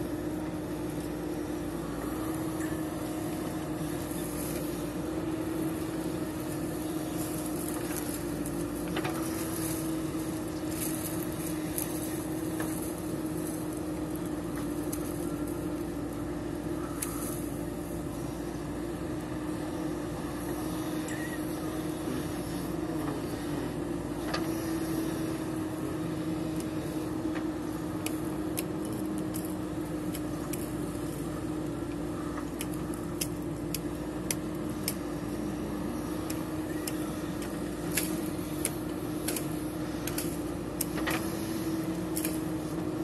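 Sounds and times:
backhoe digging soil: 0.0 - 43.0
diesel engine running: 0.0 - 43.0.

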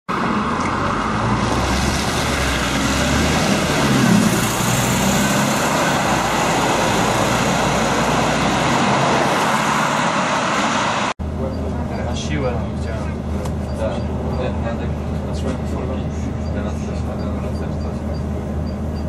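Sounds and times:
bus diesel engine passing: 0.1 - 19.0
tyres hissing on wet road: 1.3 - 11.2.

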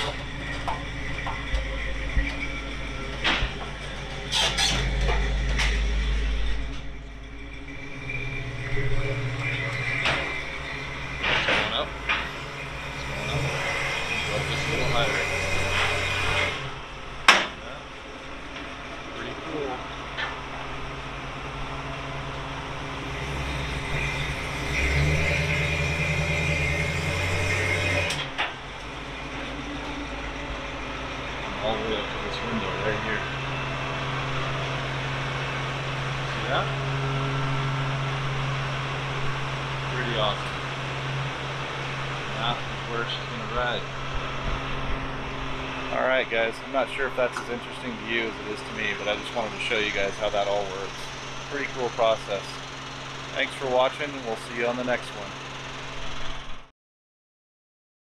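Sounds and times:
quiet idling hum: 0.0 - 56.5
motor humming and whining: 0.0 - 56.7
vehicle engine rumbling: 0.0 - 56.7.

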